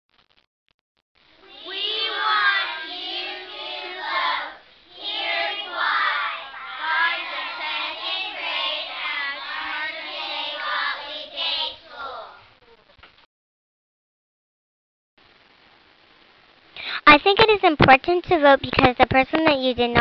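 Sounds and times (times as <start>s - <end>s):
young children singing: 1.4s - 12.5s.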